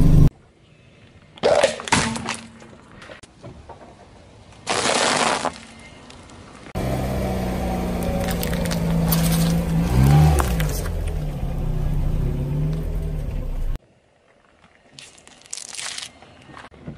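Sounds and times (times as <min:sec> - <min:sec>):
car engine running: 0:00.0 - 0:00.3, 0:06.8 - 0:13.8
tyre crunching foil-wrapped chocolate: 0:15.0 - 0:16.2.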